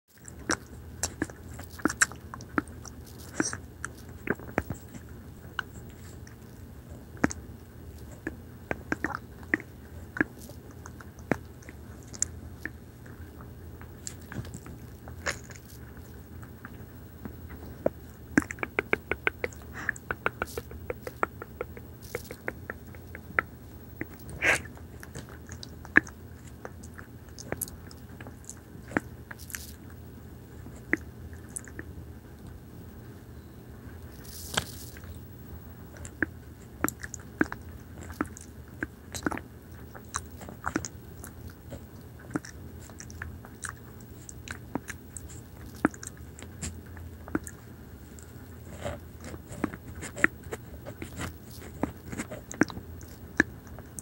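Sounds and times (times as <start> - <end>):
steady low hum: 0.1 - 54.0
wet mouth licking and clicking: 0.2 - 6.4, 16.6 - 29.8, 36.0 - 47.6.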